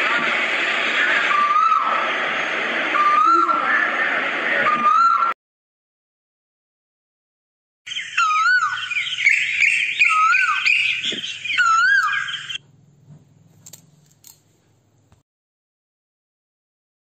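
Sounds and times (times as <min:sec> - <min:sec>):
bird whistled call: 0:07.9 - 0:12.6.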